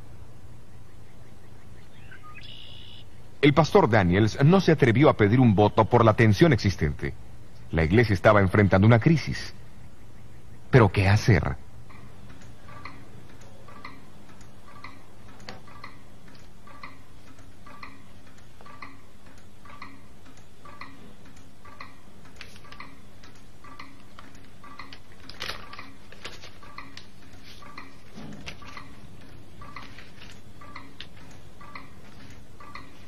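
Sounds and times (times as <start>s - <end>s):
mechanical clock ticking: 10.7s - 33.0s.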